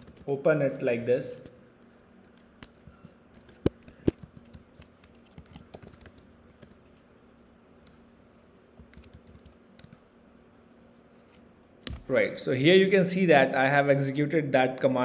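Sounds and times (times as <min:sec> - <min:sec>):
laptop keyboard typing: 0:00.0 - 0:00.8, 0:02.2 - 0:07.1, 0:08.8 - 0:10.1.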